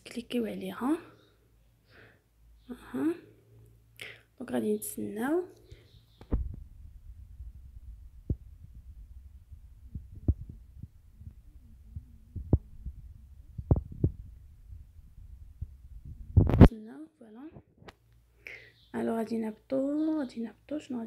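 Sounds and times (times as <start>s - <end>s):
microphone handling knocks: 6.2s - 11.4s, 12.3s - 16.7s
low rumble: 6.3s - 16.7s.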